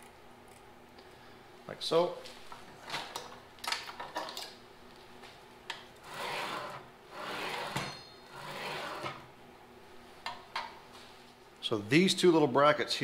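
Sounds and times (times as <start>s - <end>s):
saw head sliding on rails: 6.0s - 9.3s.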